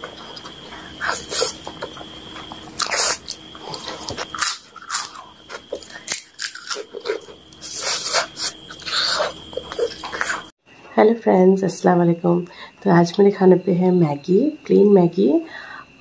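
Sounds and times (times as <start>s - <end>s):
wet chewing and slurping: 0.2s - 10.5s.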